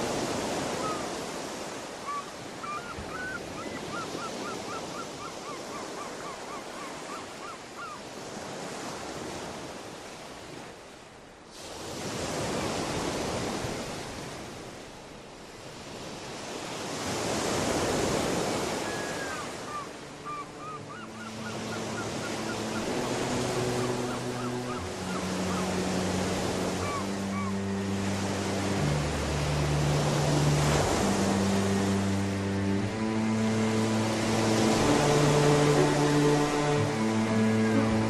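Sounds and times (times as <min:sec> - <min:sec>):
ocean waves washing onto shore: 0:00.0 - 0:38.0
birds calling: 0:18.7 - 0:28.2.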